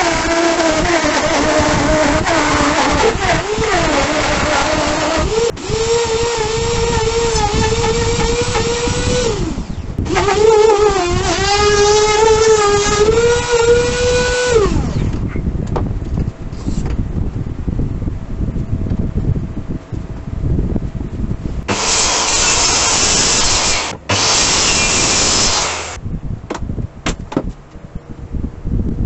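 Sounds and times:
router motor whine: 0:00.0 - 0:15.3, 0:21.7 - 0:26.0.

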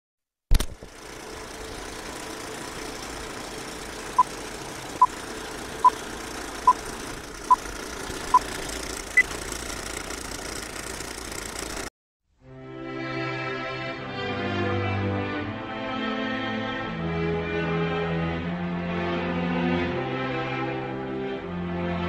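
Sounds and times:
film projector whirr with crackle: 0:00.5 - 0:11.9.

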